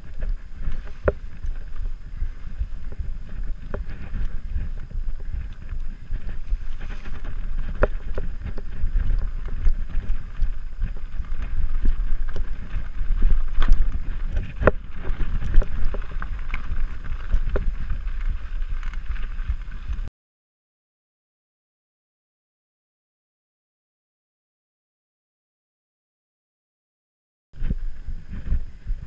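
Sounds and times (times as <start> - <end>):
bike clattering over bumps: 0.0 - 20.0
wind buffeting microphone: 0.0 - 20.1, 27.6 - 29.0.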